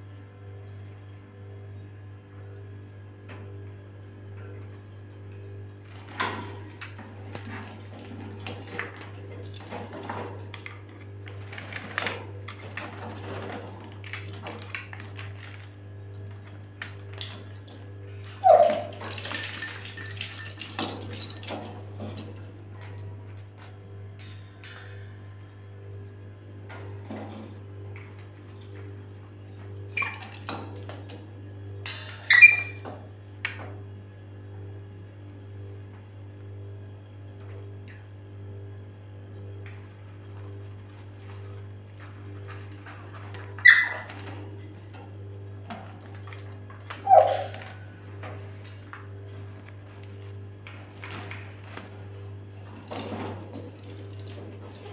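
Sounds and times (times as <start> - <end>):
bird clattering on cage bars: 47.0 - 47.8.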